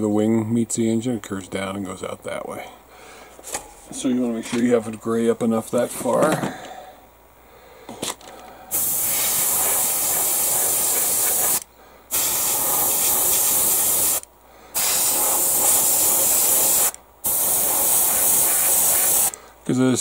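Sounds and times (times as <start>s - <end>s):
airbrush spraying hiss: 8.7s - 19.4s.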